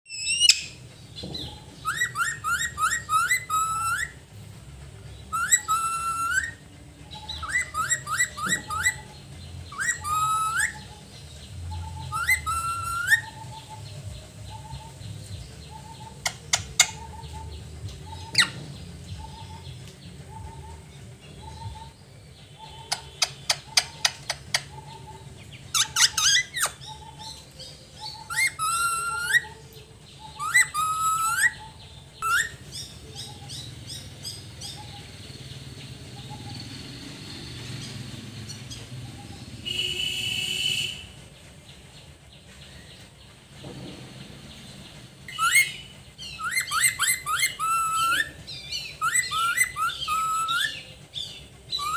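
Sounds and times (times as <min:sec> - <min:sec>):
parakeet squawking: 0:09.7 - 0:11.0, 0:11.8 - 0:13.5, 0:25.7 - 0:27.0
parakeet clicking chatter: 0:22.7 - 0:26.9.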